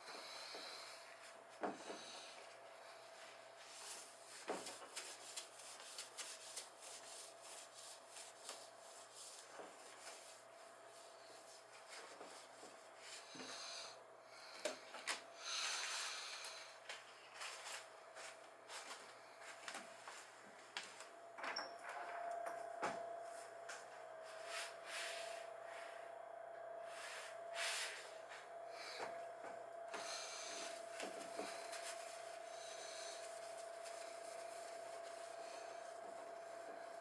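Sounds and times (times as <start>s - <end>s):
faint steady hum: 0.0s - 37.0s
cloth rubbing a surface: 3.2s - 13.3s, 24.2s - 26.0s, 30.0s - 37.0s.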